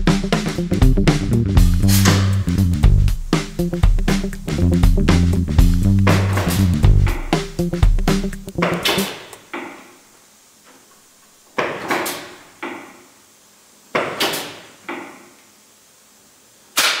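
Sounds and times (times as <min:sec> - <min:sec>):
air venting hiss: 0:00.0 - 0:17.0
pneumatic cylinder clacking: 0:01.9 - 0:02.5, 0:08.6 - 0:09.8, 0:11.6 - 0:12.9.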